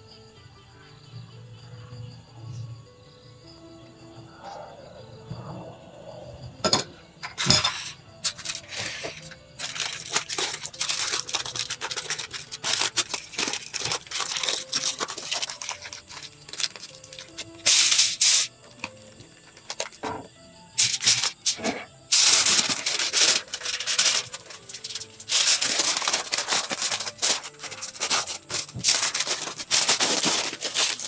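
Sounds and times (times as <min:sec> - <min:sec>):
aluminium foil crinkling: 0:07.4 - 0:20.2, 0:20.8 - 0:31.0.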